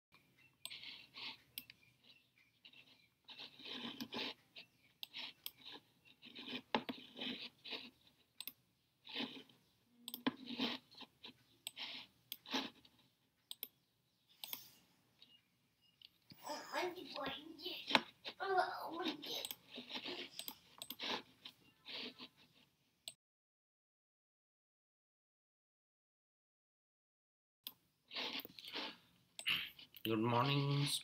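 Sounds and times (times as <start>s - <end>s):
scratching and rustling: 0.2s - 8.4s, 9.0s - 13.5s, 16.1s - 22.8s, 28.1s - 31.0s
sharp clicks: 0.2s - 13.8s.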